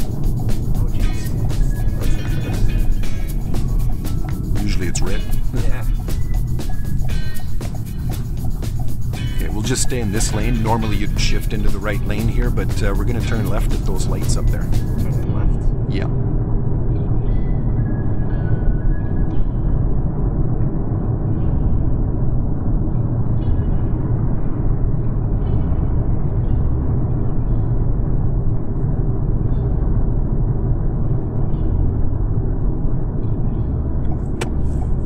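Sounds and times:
car tyre and engine rumble: 33.2 - 35.0.

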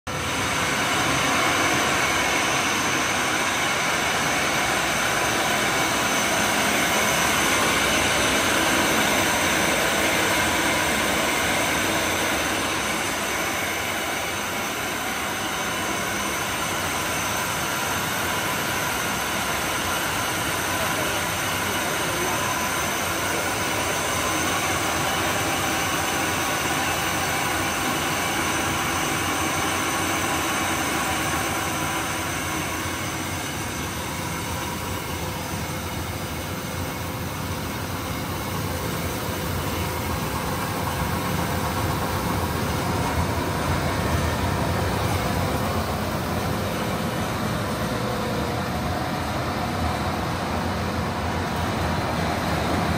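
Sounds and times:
grinding machine running: 0.1 - 52.9.

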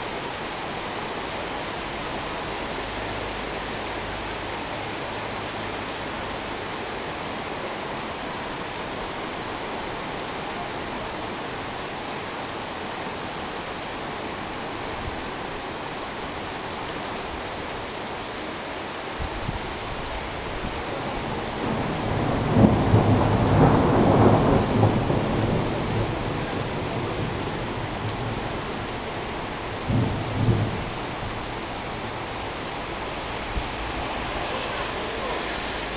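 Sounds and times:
heavy rain pouring: 0.0 - 35.9
thunder rolling: 20.6 - 35.9.

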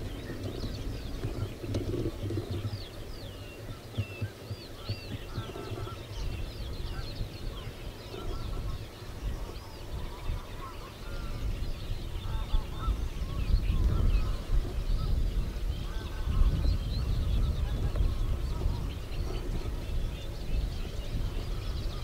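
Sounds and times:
grebes honking calls: 1.2 - 11.5.

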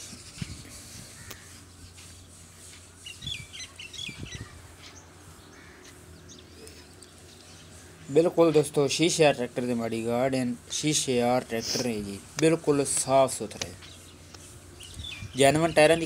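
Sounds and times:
small birds chirping: 0.2 - 9.5, 12.8 - 16.0.

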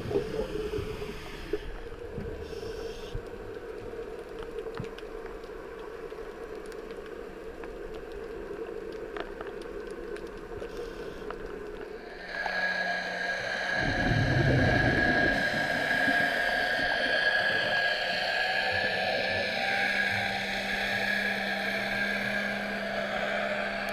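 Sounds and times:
faint underwater clicks: 0.0 - 12.6
boat motor droning underwater: 0.0 - 23.9.

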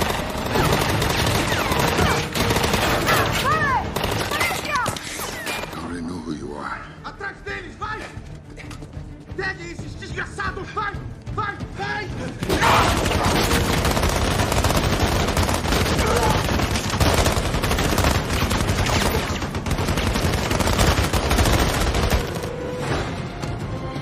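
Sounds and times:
music: 0.0 - 24.0
automatic gunfire: 12.5 - 22.5.

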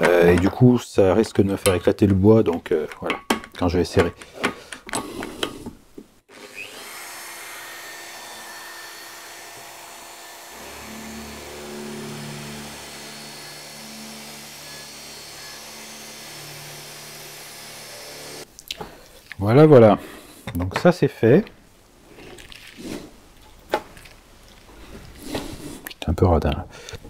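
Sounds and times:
electric drill boring wood: 6.3 - 18.5
low hum of bit cutting: 6.3 - 18.5.

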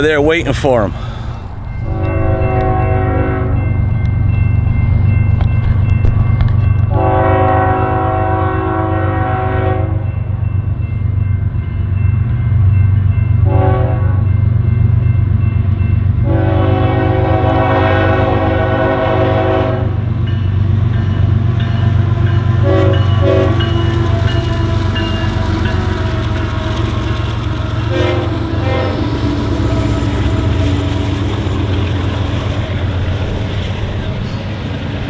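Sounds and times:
train rumbling: 0.0 - 35.0
locomotive air horn blasts: 1.8 - 3.7, 6.9 - 10.0, 13.4 - 14.3, 16.2 - 20.0, 22.6 - 25.0, 27.8 - 29.8.

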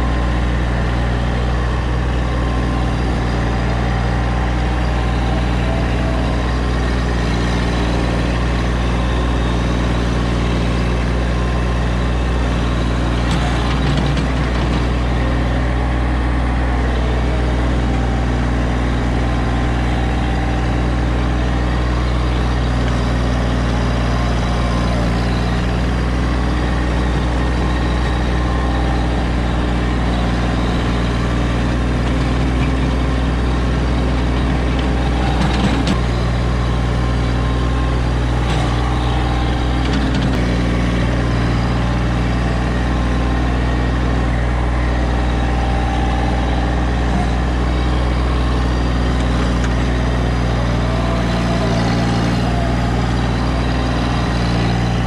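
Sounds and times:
low engine drone: 0.0 - 55.0.

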